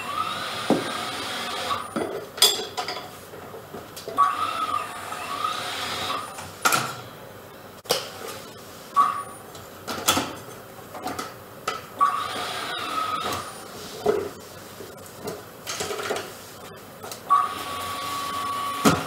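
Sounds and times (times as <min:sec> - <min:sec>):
tire changing machine whirring: 0:00.0 - 0:02.0.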